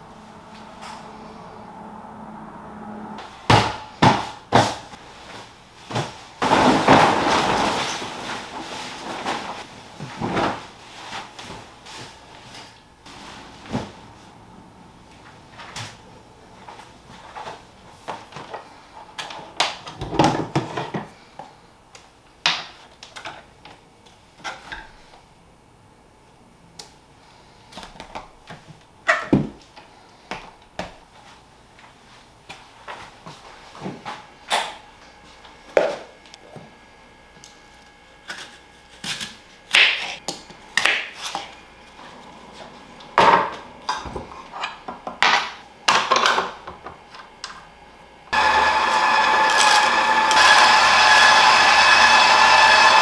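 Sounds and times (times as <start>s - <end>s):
bedding rustling and flapping: 4.5s - 14.4s.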